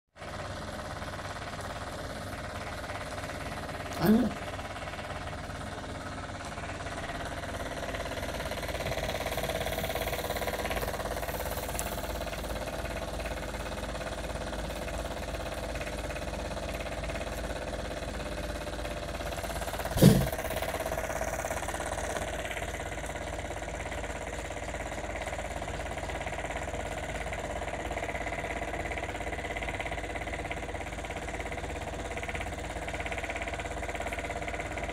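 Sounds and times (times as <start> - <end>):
toy steam engine running: 0.2 - 34.9
loud thump: 20.0 - 20.5.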